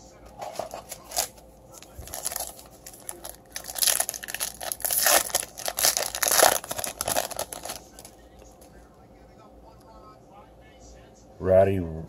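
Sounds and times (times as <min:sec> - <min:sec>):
foil wrapper tearing and crinkling: 0:00.6 - 0:08.2.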